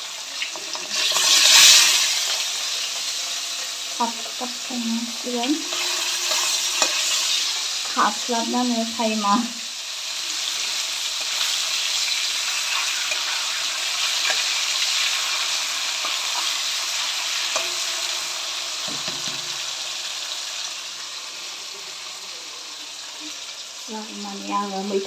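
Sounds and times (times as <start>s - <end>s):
oil sizzling in a wok: 0.0s - 25.0s
spatula scraping and knocking pan: 5.5s - 8.0s, 17.4s - 18.2s, 18.8s - 19.7s.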